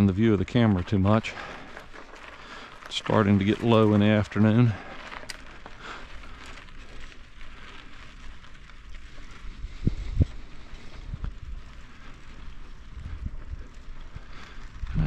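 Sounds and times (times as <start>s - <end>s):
bicycle tyres on gravel: 0.0s - 15.0s
wind on microphone: 9.4s - 11.7s.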